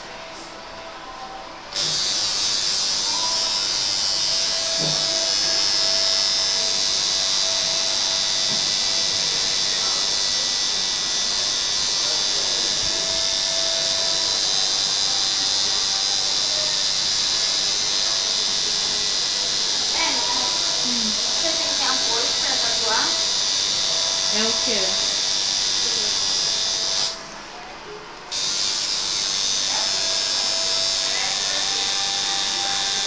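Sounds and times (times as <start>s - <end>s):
tattoo machine buzzing: 1.7s - 27.2s, 28.3s - 33.0s.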